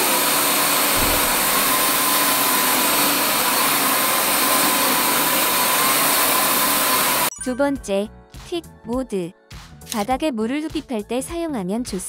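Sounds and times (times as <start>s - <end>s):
floor washer suction motor: 0.0s - 7.3s.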